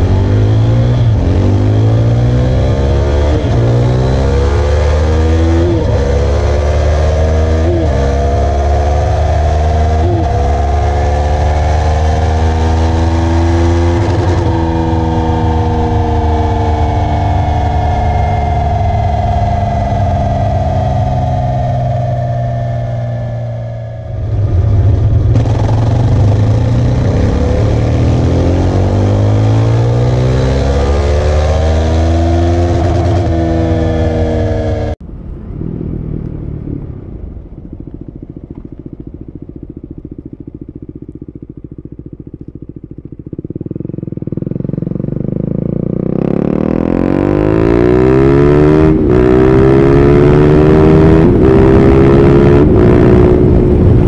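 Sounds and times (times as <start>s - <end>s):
gear change: 0.0s - 45.3s
motorcycle engine revving: 0.0s - 54.0s.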